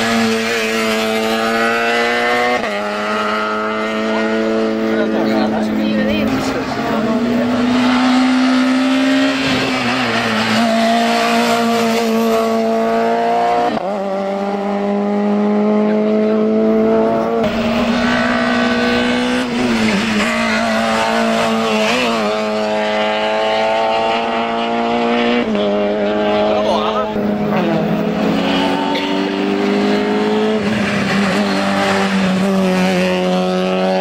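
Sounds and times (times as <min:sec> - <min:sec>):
race car engine at high revs: 0:00.0 - 0:34.0.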